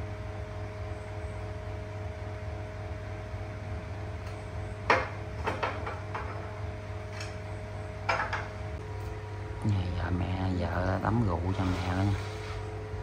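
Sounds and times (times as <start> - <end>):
steady low hum: 0.0 - 13.0
plate knocking on glass tabletop: 4.9 - 6.4, 8.1 - 8.5.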